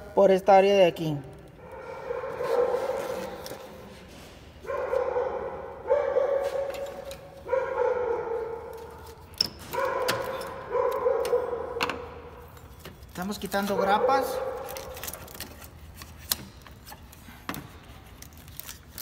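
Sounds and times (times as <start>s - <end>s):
dog barking: 1.6s - 3.5s, 4.6s - 9.0s, 9.7s - 11.8s, 13.7s - 15.0s.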